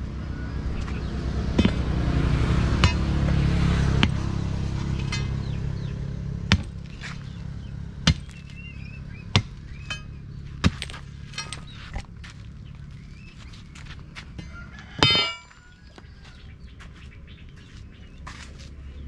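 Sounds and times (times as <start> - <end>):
metal bar striking broken stone: 9.8 - 12.1, 14.9 - 15.6.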